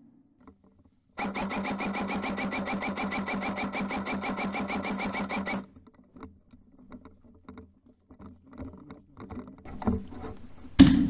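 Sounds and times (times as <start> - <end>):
fast mechanical rattle: 1.2 - 5.7.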